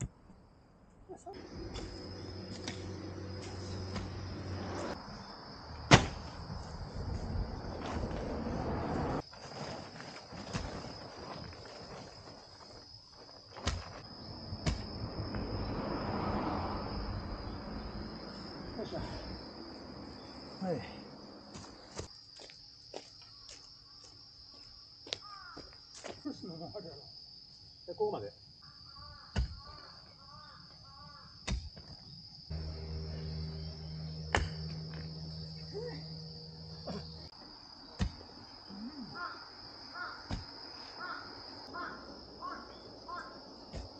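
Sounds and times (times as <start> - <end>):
insects trilling: 0.2 - 43.9
digging tool striking hard soil: 5.9 - 6.2, 34.3 - 34.6, 38.0 - 38.2, 40.3 - 40.5
low hum: 32.5 - 37.3.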